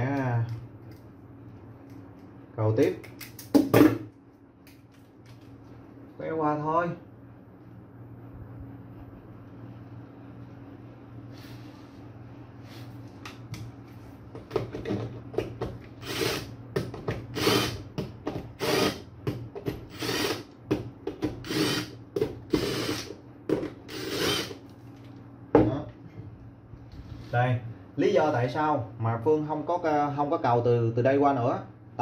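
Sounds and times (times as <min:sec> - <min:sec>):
electric screwdriver whirring: 0:16.0 - 0:16.5, 0:17.3 - 0:17.8, 0:18.6 - 0:19.0, 0:19.9 - 0:20.5, 0:21.4 - 0:23.2, 0:23.9 - 0:24.6.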